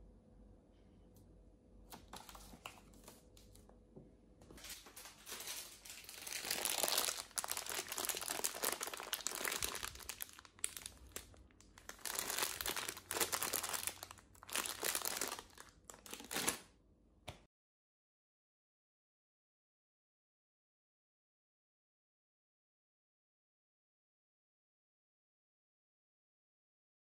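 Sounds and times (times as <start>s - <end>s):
plastic bags crinkling: 4.5s - 16.7s.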